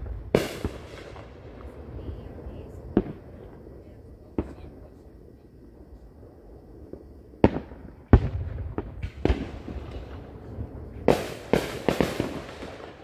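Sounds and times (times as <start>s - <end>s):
firework booms with echoes: 0.0s - 5.1s, 6.0s - 13.0s
sharp firework reports: 0.0s - 5.1s.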